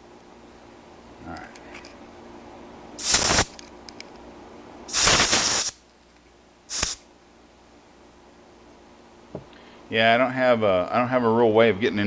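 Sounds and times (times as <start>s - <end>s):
compressed air blow gun hissing: 3.0s - 3.5s, 4.9s - 5.8s, 6.7s - 7.0s.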